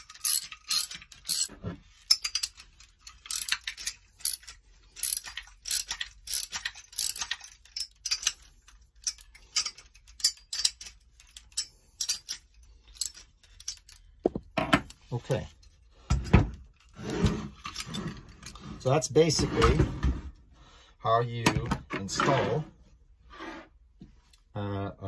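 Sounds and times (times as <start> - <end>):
socket wrench ratcheting: 0.0 - 14.1.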